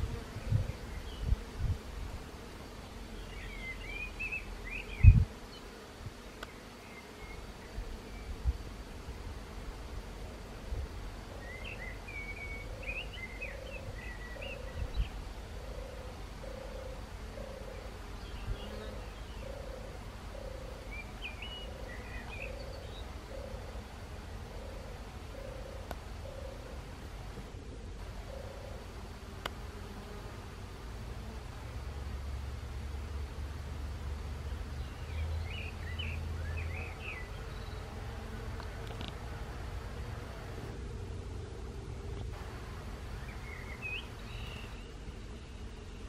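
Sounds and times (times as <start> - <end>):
bees buzzing: 0.0 - 46.0
small bird chirping: 43.2 - 46.0.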